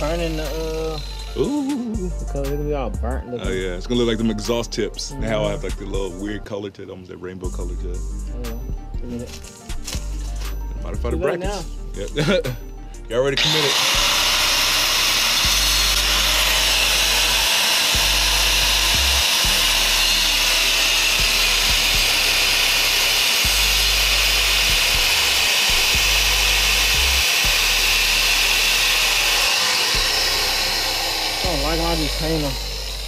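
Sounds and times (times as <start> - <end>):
angle grinder grinding metal: 0.0 - 2.3, 13.2 - 33.0.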